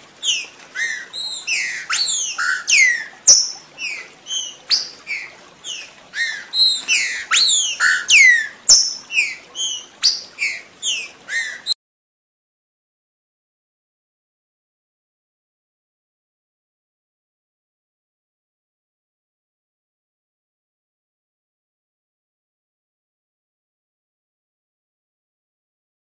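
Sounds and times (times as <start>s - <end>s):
bird song whistled notes: 0.2s - 11.8s.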